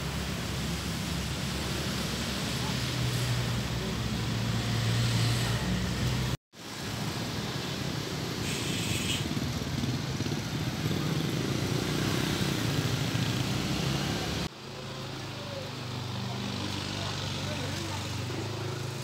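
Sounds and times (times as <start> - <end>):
motorcycles driving past: 0.0 - 6.4, 7.2 - 19.0.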